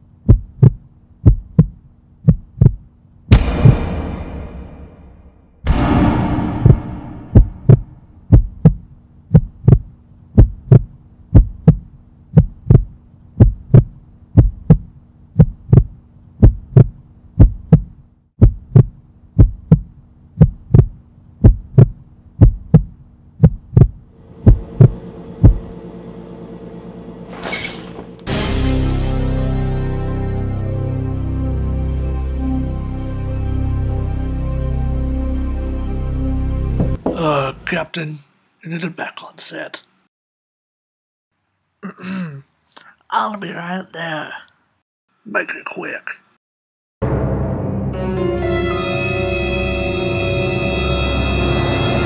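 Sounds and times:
heartbeat thumps: 0.3 - 3.9, 5.7 - 25.7
steady low hum: 5.7 - 28.3.

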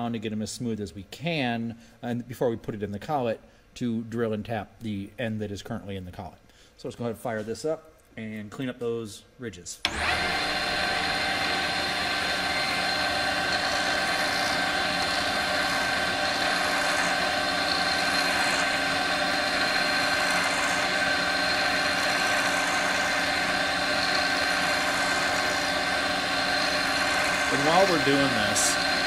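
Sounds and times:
metal lathe whining: 9.9 - 29.0.

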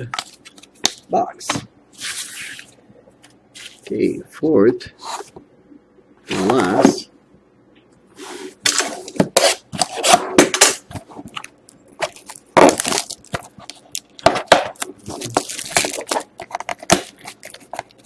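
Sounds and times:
plastic shrink wrap crackling: 12.0 - 14.2, 14.8 - 18.0.

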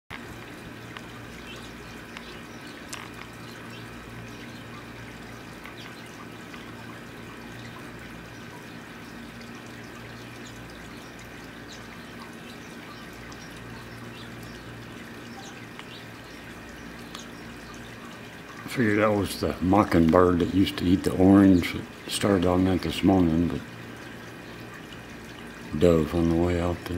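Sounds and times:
background hum and hiss: 0.1 - 26.9
faint light ticks: 17.0 - 17.3.

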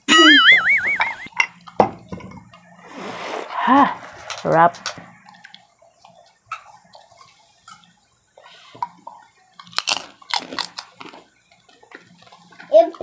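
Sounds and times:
chewing crispy food: 9.0 - 13.0.

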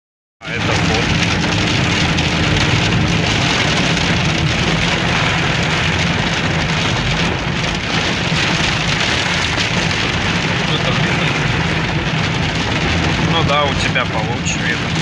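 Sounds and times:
engine and tyres humming: 0.4 - 15.0
heavy rain on car roof: 0.4 - 15.0.

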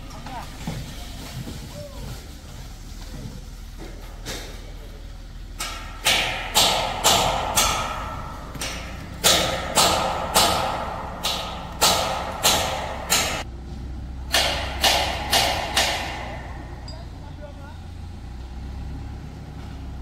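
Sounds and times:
sharp knocks: 5.6 - 13.5, 14.3 - 17.3.

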